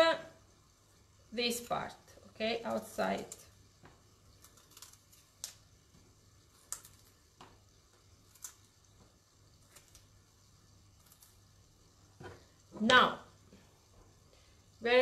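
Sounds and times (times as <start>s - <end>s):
artichoke leaves snapping: 4.3s - 5.7s, 6.5s - 7.2s, 8.2s - 8.7s, 9.6s - 10.1s, 11.0s - 11.4s.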